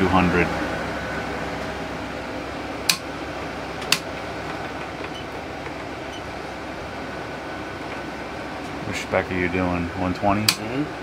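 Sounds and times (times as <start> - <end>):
fan hum: 0.0 - 11.0.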